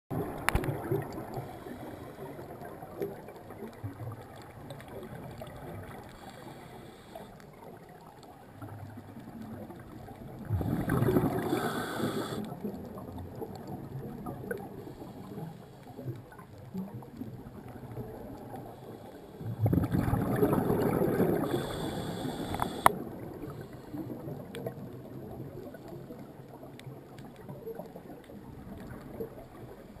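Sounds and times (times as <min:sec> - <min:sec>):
faint underwater background: 0:00.1 - 0:30.0
muffled regulator bubbles: 0:08.6 - 0:30.0
light ticking: 0:21.5 - 0:23.0.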